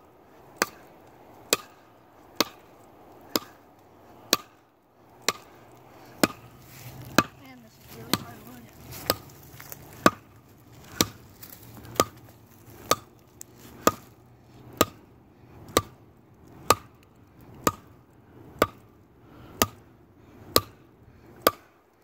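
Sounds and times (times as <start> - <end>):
axe chopping log: 0.6 - 3.6, 4.3 - 4.6, 5.2 - 14.2, 14.8 - 15.1, 15.7 - 16.0, 16.6 - 17.0, 17.6 - 18.0, 18.6 - 18.9, 19.5 - 19.9, 20.5 - 20.8, 21.4 - 21.8.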